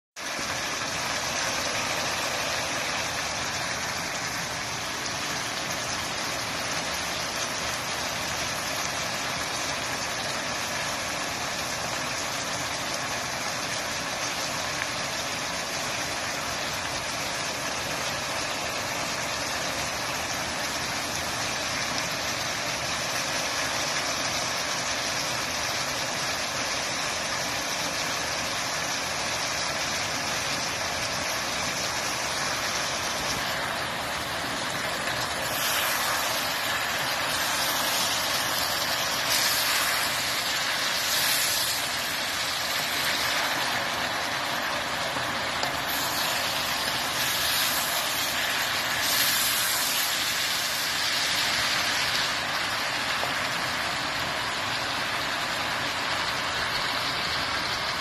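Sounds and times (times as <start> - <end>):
vegetables sizzling in a wok: 0.2 - 58.0.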